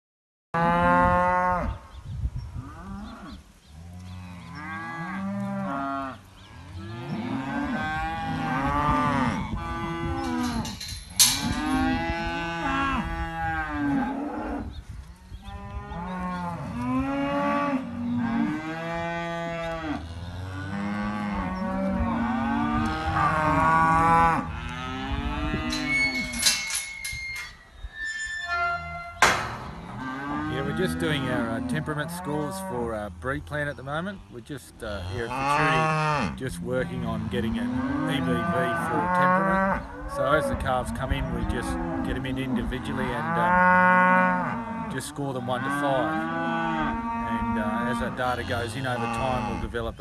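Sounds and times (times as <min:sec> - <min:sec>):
calves bawling: 0:02.6 - 0:50.0
sharp knock: 0:29.2 - 0:29.8.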